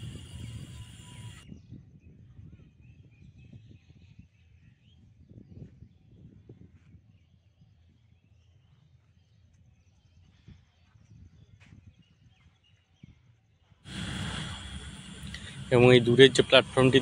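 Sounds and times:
loud abrupt noise: 0.0s - 1.4s, 13.9s - 17.0s
low outdoor rumble: 0.0s - 1.4s, 13.9s - 17.0s
faint bird chirps: 0.0s - 15.6s.

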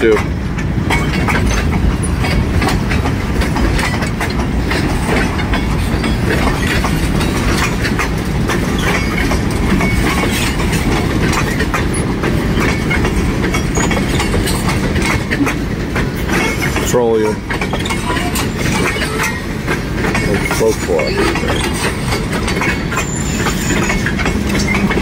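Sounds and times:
train wheels rumbling on rail: 0.0s - 25.0s
wheels clacking over rail joints: 0.0s - 25.0s.

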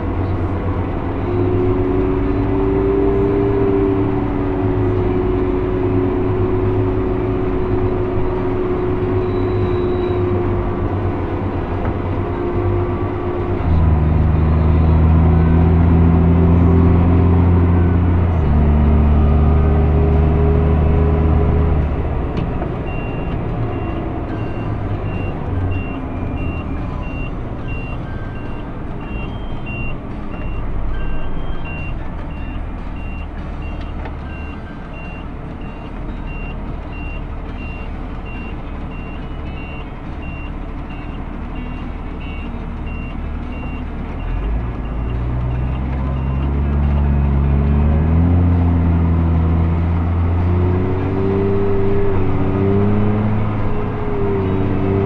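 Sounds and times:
tractor engine drone from cab: 0.0s - 55.0s
high-pitched beep: 7.6s - 10.6s, 22.9s - 46.6s.

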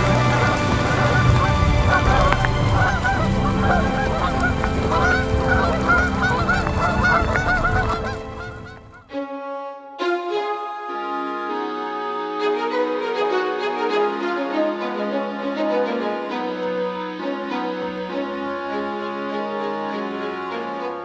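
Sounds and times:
geese honking: 0.0s - 9.1s
music: 0.0s - 21.0s.

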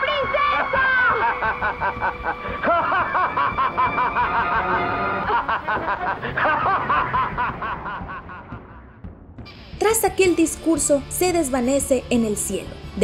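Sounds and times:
film score music: 0.0s - 13.0s
villain cackling laugh: 0.3s - 8.9s.

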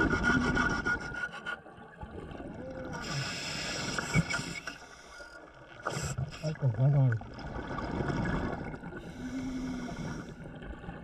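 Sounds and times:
diver breathing through regulator: 9.0s - 10.4s.

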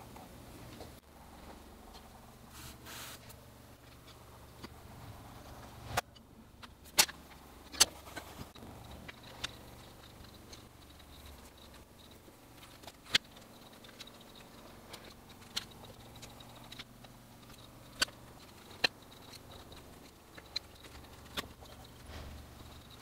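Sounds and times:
pencils clicking: 6.9s - 23.0s.

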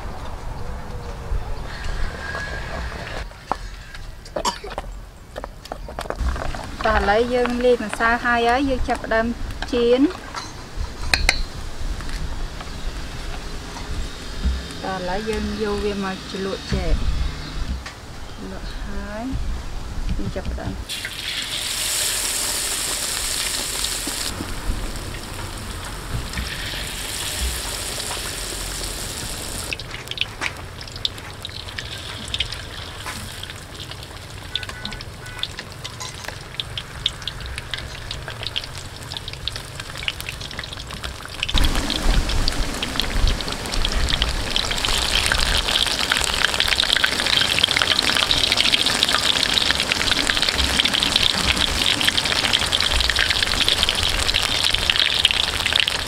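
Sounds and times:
food deep-frying in hot oil: 6.2s - 10.3s, 20.9s - 56.0s.

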